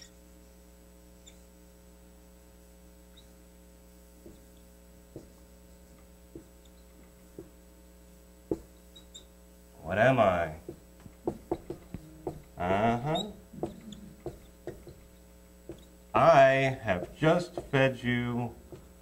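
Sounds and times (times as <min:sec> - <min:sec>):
electrical mains hum: 0:00.0 - 0:19.0
marker tapping whiteboard: 0:06.3 - 0:06.5, 0:08.5 - 0:08.7, 0:10.6 - 0:15.1, 0:15.7 - 0:18.9.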